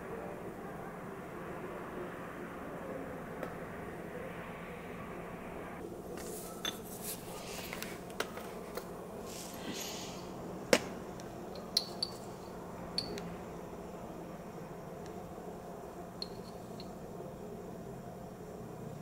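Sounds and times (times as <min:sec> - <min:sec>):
soft scraping and rustling: 0:06.1 - 0:09.8
metal spoon clinking dishes: 0:06.6 - 0:06.9, 0:11.6 - 0:13.2.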